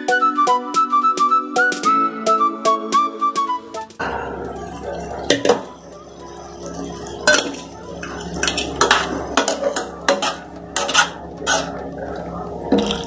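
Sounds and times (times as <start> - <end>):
spatula scraping metal wok: 4.0 - 12.0.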